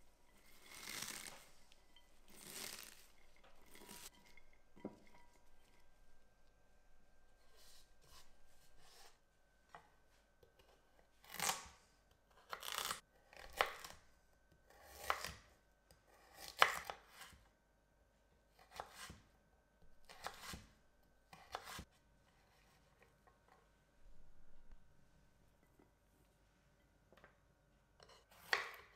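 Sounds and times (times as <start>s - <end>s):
knife cutting carrot on wooden board: 18.6s - 19.2s, 20.1s - 20.7s, 21.3s - 21.8s, 28.0s - 28.9s.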